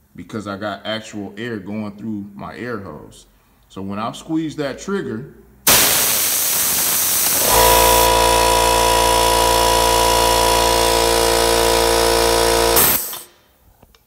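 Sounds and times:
air hissing from spray gun: 5.7s - 8.2s
air compressor motor humming: 5.7s - 13.3s.

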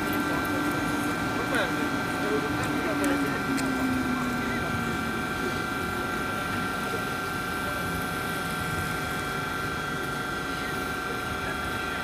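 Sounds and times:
electric locomotive whine: 0.0s - 12.0s
rushing hum: 0.0s - 12.0s.

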